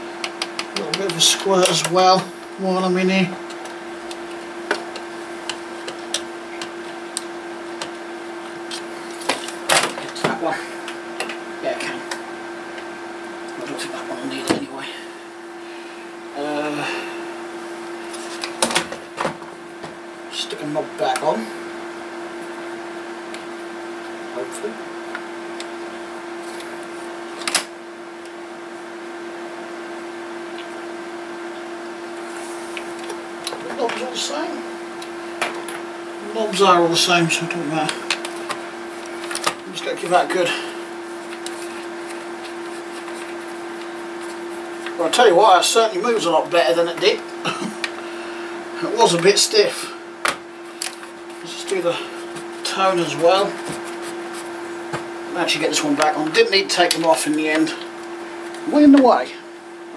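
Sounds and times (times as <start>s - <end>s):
steady low hum: 0.0s - 59.9s
hands handling electronics: 37.9s - 39.7s, 41.1s - 45.0s.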